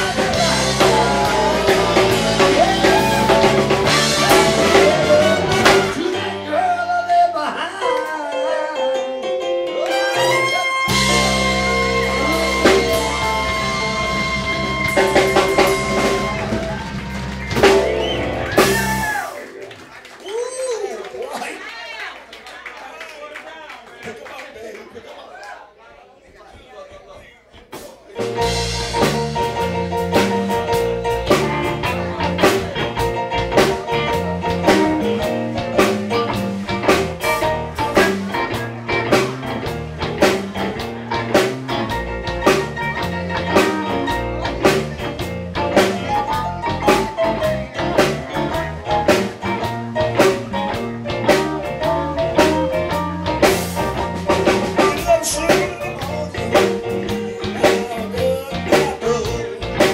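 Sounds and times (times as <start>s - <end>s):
drum kit beat: 0.0s - 6.8s, 9.6s - 19.6s, 26.3s - 59.9s
electric guitar: 0.0s - 19.9s, 28.2s - 59.9s
live blues band playing: 0.0s - 20.2s, 27.6s - 59.9s.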